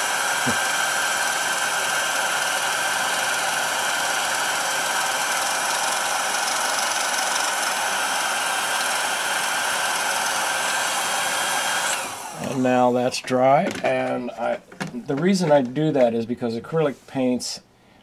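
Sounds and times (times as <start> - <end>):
hair dryer running: 0.0 - 12.8.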